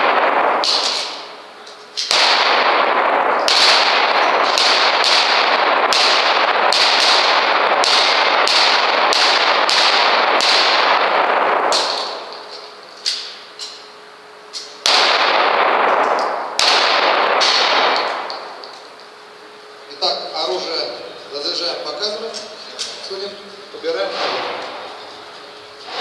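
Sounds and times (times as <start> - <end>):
echoing pistol shots: 0.0 - 12.6, 14.8 - 18.8, 24.1 - 25.0.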